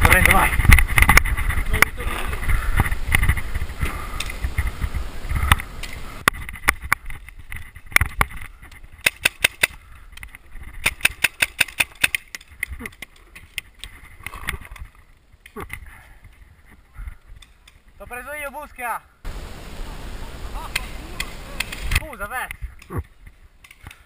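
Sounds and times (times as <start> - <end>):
paintball markers firing: 9.0 - 9.8, 10.8 - 12.5.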